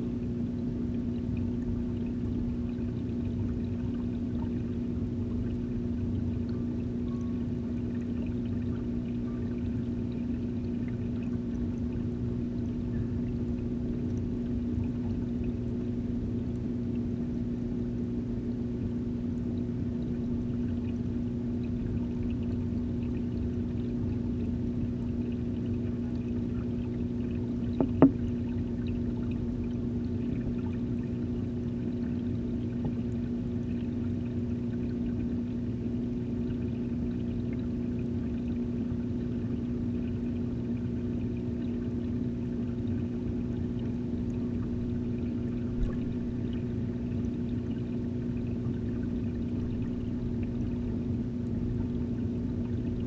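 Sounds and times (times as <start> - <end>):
aquarium filter pump hum: 0.0 - 53.0
moving water underwater: 0.0 - 53.0
sharp knocks: 27.8 - 28.2.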